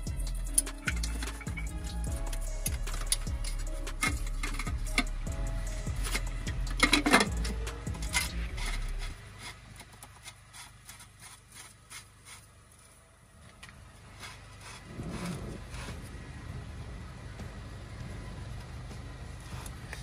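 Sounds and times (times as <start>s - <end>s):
tools rubbing and rattling: 0.0s - 12.9s.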